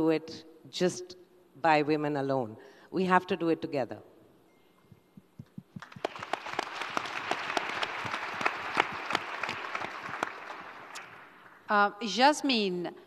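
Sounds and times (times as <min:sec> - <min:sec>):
audience applauding: 0:05.7 - 0:11.7.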